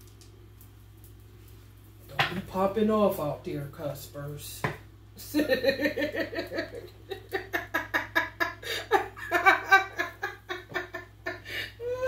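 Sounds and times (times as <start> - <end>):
woman laughing: 5.2 - 12.0.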